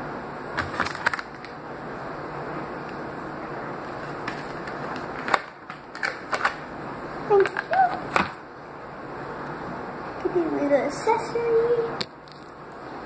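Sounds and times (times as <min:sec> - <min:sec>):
high voice sounds: 0:07.2 - 0:08.1.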